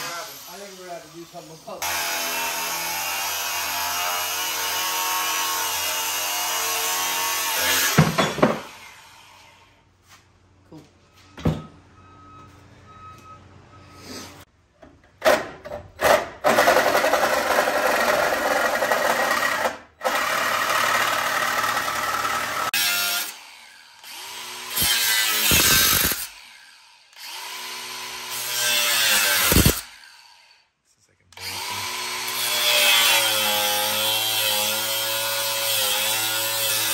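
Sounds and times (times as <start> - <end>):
angle grinder cutting steel: 0.0 - 9.7, 16.5 - 30.5, 31.4 - 36.9.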